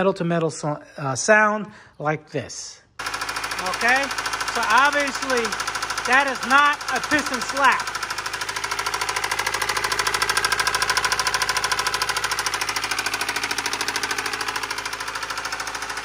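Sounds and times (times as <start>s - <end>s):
engine with rapid metallic knock: 3.0s - 16.0s.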